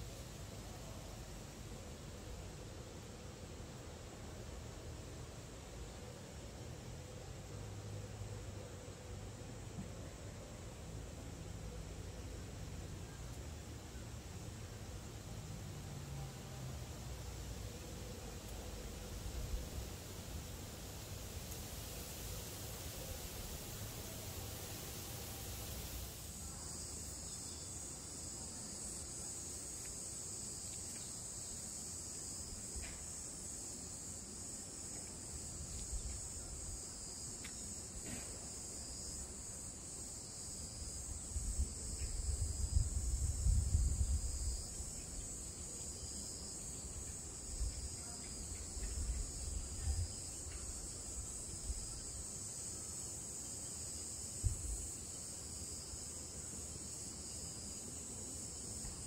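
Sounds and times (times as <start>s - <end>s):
cicadas chorus: 0.0s - 59.0s
wind rumble on microphone: 41.3s - 44.8s.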